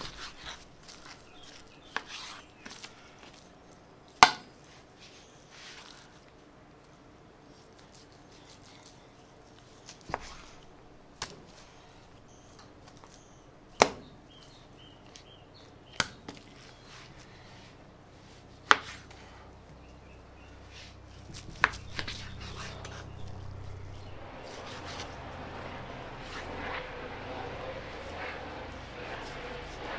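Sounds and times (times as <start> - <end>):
low rumble: 19.9 - 29.9.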